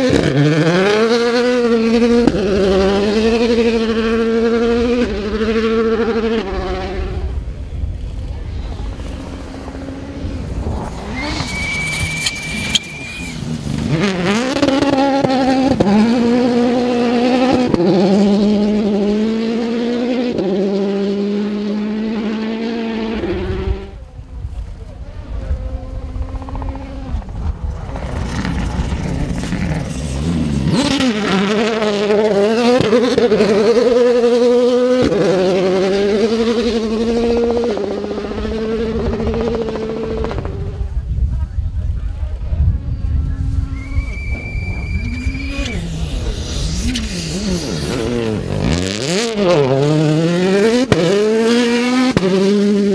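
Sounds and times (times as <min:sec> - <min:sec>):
rally car engine at full throttle: 0:00.0 - 0:52.9
high whistle: 0:11.0 - 0:13.4, 0:43.7 - 0:46.0.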